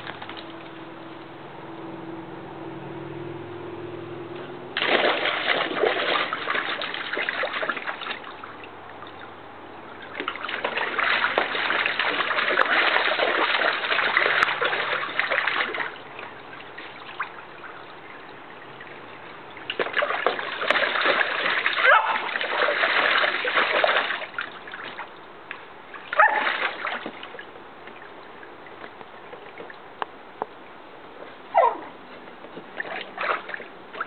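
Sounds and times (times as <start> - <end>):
dog splashing in water: 0.0 - 0.7, 4.8 - 9.3, 10.0 - 29.8, 32.6 - 34.0.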